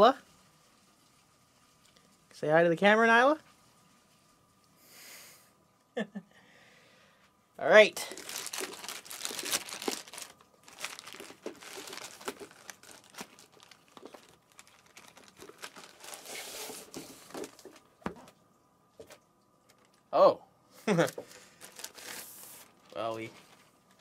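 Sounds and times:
wrapping crinkling and tearing: 8.0 - 18.3, 19.6 - 20.1, 21.0 - 24.0.

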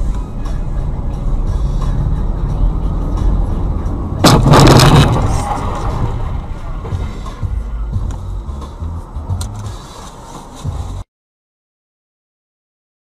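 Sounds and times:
vehicle rumbling on road: 0.0 - 11.1
car collision crash: 4.2 - 7.4.

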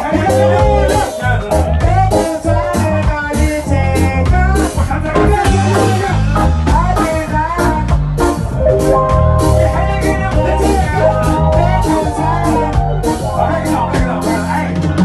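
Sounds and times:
reggae band playing: 0.0 - 15.0
person singing: 8.6 - 14.6.

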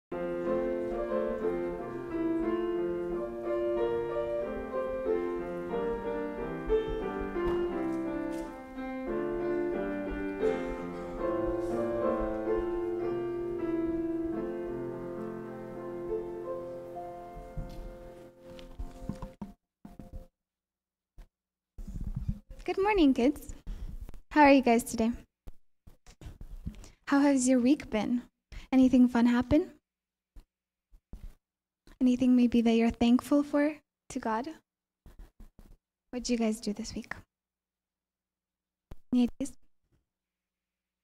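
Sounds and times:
piano playing slow chords: 0.1 - 19.2.

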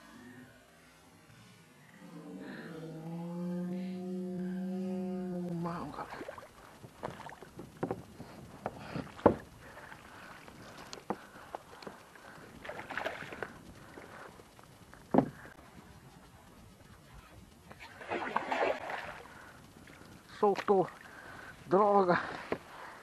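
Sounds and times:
sharp knocks on kayak: 15.1 - 15.4
fish splashing at surface: 17.9 - 19.2.

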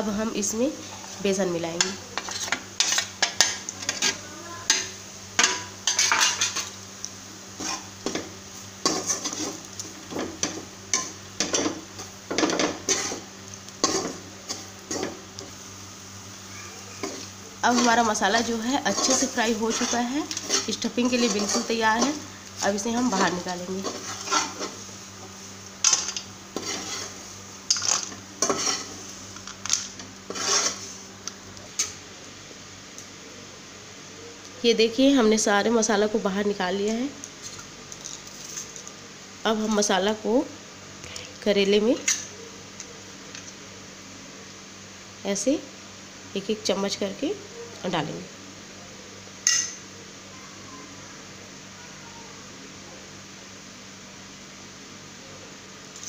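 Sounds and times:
metal spoon scraping a steel pan: 12.8 - 13.2, 17.0 - 22.2, 23.0 - 24.8, 25.8 - 29.0, 30.3 - 30.9.

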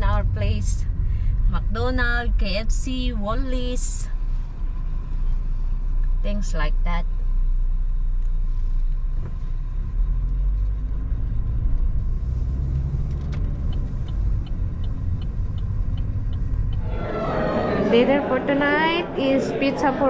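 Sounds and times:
car road and engine noise: 0.0 - 20.0
turn signal ticking: 8.1 - 16.8.

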